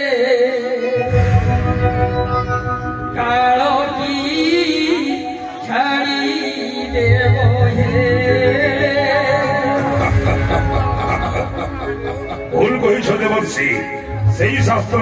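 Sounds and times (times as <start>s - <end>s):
musical accompaniment: 0.0s - 15.0s
person singing with vibrato: 0.0s - 15.0s
low pulsing beat: 9.4s - 13.2s.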